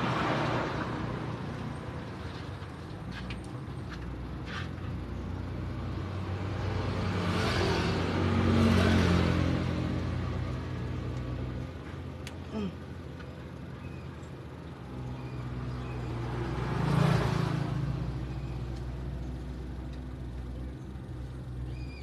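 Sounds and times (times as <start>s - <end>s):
vehicle engine running: 8.2s - 22.0s.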